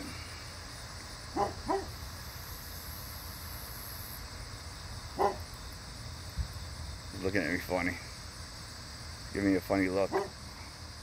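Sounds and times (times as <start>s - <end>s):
dog barking: 1.4s - 2.0s, 5.2s - 5.4s, 10.1s - 10.4s.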